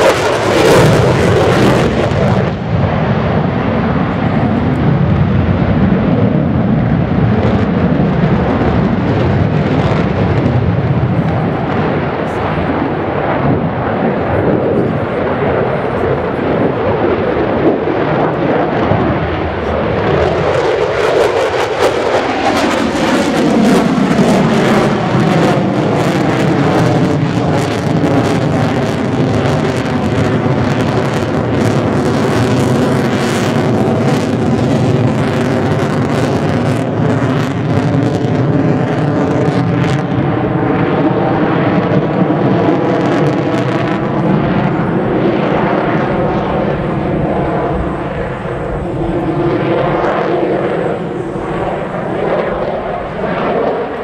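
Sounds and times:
jet engine roar overhead: 0.0 - 54.0.

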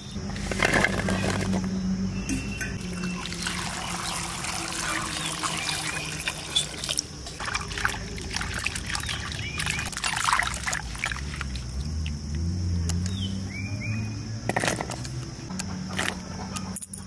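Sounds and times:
small birds chirping: 1.0 - 7.0, 7.7 - 10.0, 12.8 - 14.4
water pouring into a bowl: 2.8 - 12.0
hands sloshing pieces in water: 2.8 - 12.2.

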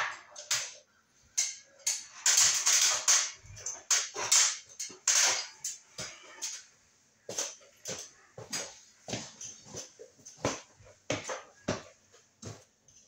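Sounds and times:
climbing down metal ladder: 1.4 - 6.7.

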